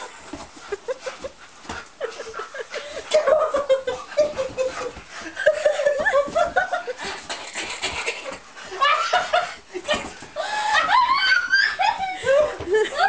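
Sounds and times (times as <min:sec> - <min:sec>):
scuffling on sofa: 0:00.0 - 0:07.3.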